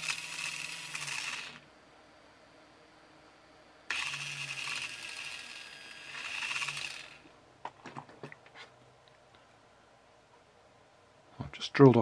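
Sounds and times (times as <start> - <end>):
electric drill whining through plastic: 0.0 - 1.7, 3.9 - 7.3.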